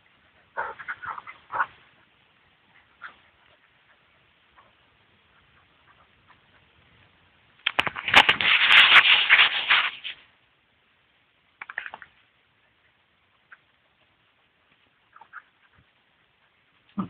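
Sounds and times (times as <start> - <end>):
rubbing and rustling on microphone: 2.6 - 10.3.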